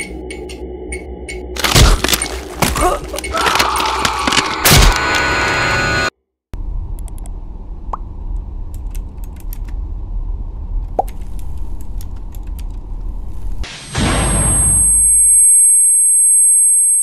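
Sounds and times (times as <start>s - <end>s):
low room hum: 6.6s - 13.6s.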